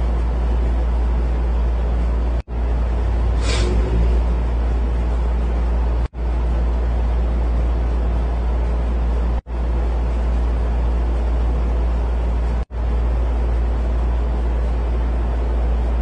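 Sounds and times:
loud low rumble: 2.5s - 6.1s.

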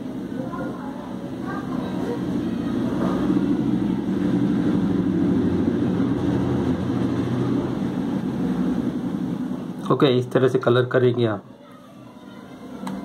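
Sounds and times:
low mechanical drone: 0.0s - 10.0s.

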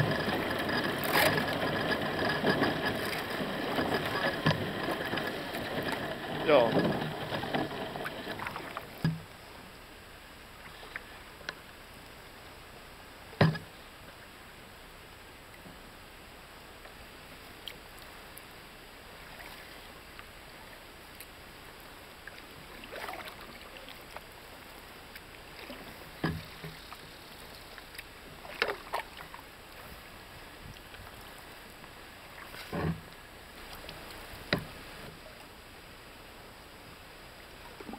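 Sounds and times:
paddle strokes in water: 0.0s - 9.6s, 10.5s - 11.7s, 16.9s - 35.6s.

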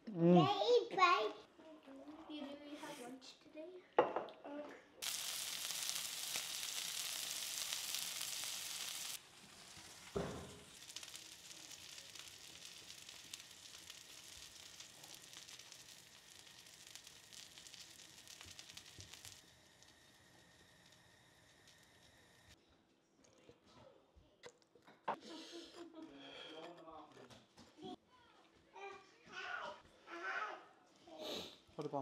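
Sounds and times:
small pops: 5.0s - 22.3s
burger patties sizzling in a pan: 5.0s - 22.6s.

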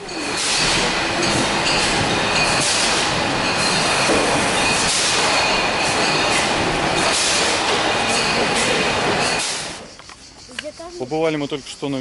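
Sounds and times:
faint high machine whines: 0.0s - 6.7s
conveyors clattering: 0.0s - 12.0s.

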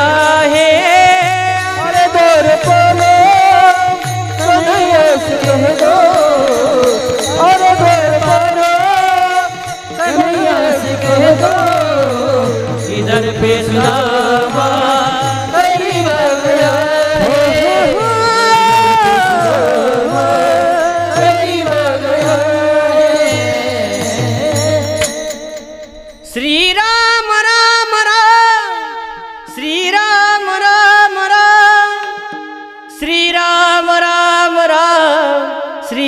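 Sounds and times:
hand cymbals: 0.0s - 27.4s
person singing wavering melody: 0.0s - 32.2s.

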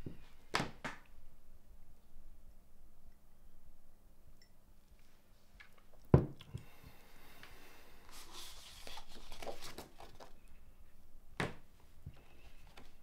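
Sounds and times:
rustling: 8.0s - 10.6s.

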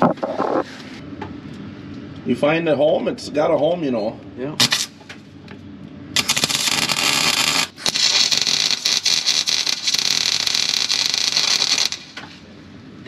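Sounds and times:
welder arc crackling: 6.2s - 12.2s.

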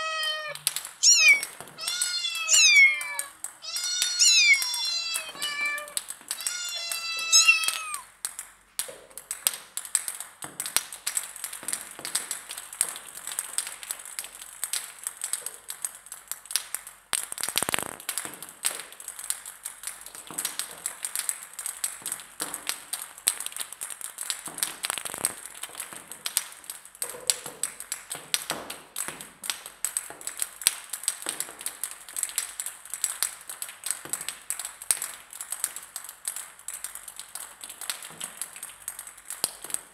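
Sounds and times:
cat meowing: 0.0s - 8.0s
table tennis balls bouncing: 0.0s - 13.8s.

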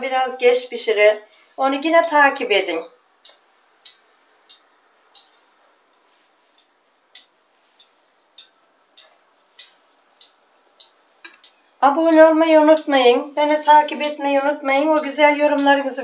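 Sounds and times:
light sharp clicks: 6.6s - 12.9s.

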